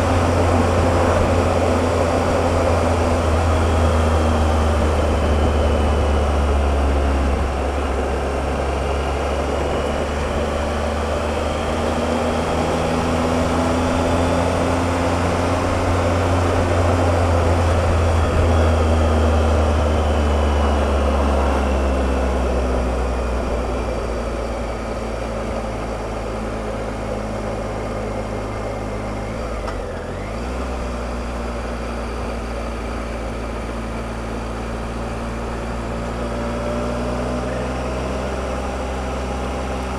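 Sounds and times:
wind rush: 0:00.0 - 0:20.3
motorcycle engine running: 0:00.0 - 0:39.9.

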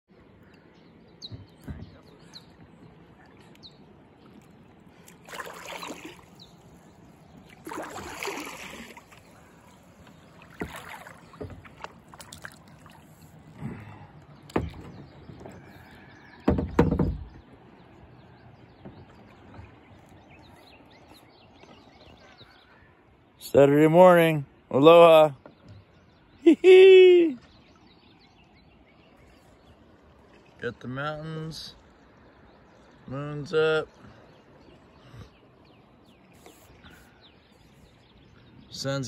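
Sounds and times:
paddle strokes splashing: 0:01.4 - 0:17.0, 0:34.0 - 0:38.6.

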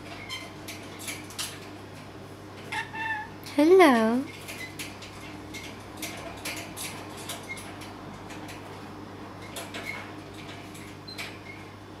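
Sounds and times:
bird squeaks: 0:02.7 - 0:03.3.

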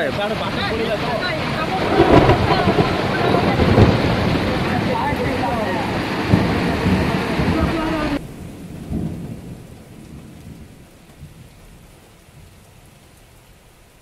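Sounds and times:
heavy rain: 0:00.0 - 0:14.0
rushing flood torrent: 0:00.0 - 0:14.0
low rumble: 0:00.8 - 0:08.3.

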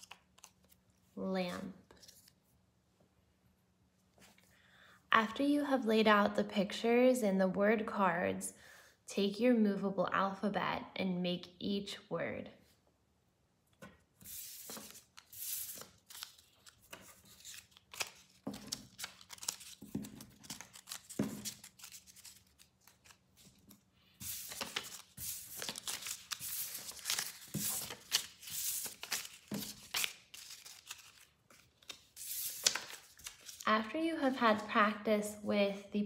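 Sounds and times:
paper cards sliding on wooden table: 0:14.2 - 0:16.2, 0:24.2 - 0:29.8, 0:32.2 - 0:33.6.

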